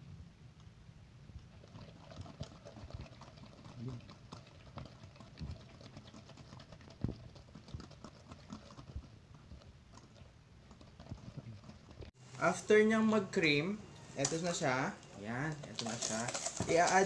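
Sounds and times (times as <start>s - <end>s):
whisk scraping metal bowl: 1.6s - 12.1s.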